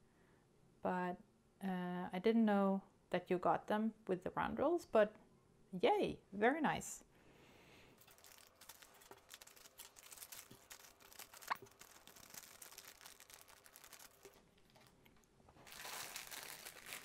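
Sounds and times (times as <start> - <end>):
plastic bag crinkling: 8.0 - 17.0.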